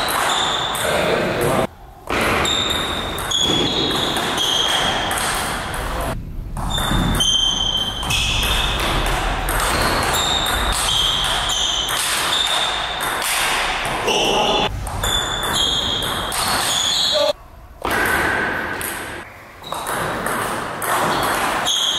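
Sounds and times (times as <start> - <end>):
large hall background noise: 0.0 - 21.9.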